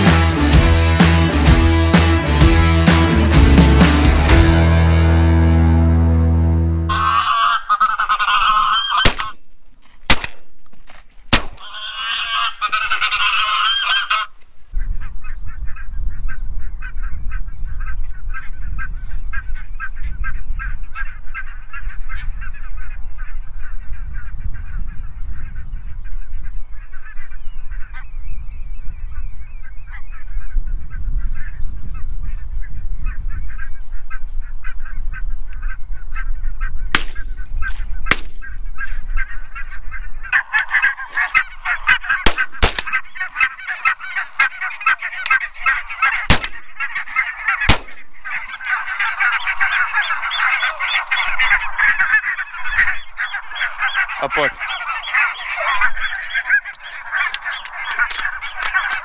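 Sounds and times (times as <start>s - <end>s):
geese honking: 0.0s - 9.4s, 11.6s - 28.1s, 32.3s - 59.0s
sharp clicks: 56.7s - 59.0s.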